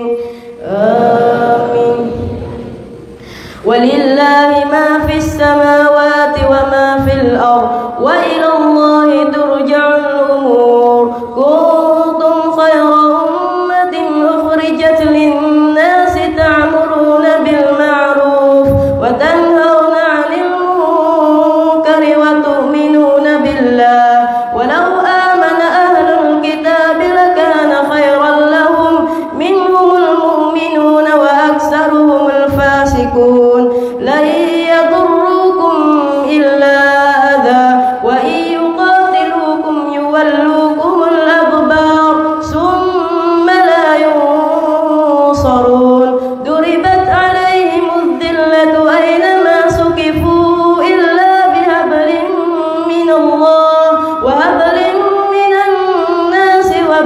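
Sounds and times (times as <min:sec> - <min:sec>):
boy chanting recitation: 0:00.0 - 0:03.0, 0:03.6 - 0:57.0
boy breathing: 0:00.2 - 0:00.6, 0:02.2 - 0:03.7.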